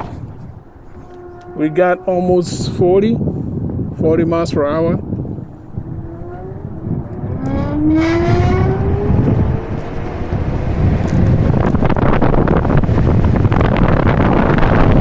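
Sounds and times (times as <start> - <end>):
electric scooter motor whining: 0.0 - 2.5
wind noise on microphone: 0.0 - 15.0.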